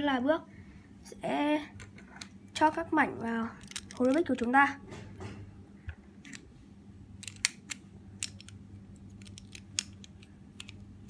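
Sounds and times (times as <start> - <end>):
plastic puzzle cube pieces clicking: 3.6 - 4.5, 7.2 - 10.8.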